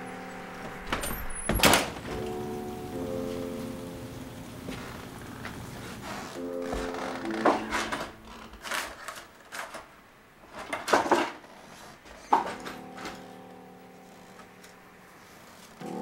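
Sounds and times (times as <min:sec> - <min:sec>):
held music chord: 0:00.0 - 0:01.4, 0:02.0 - 0:08.4, 0:12.6 - 0:16.0.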